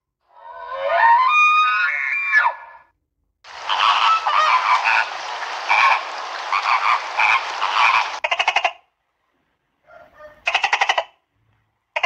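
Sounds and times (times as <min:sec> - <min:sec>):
flamingos honking: 0:03.5 - 0:08.6.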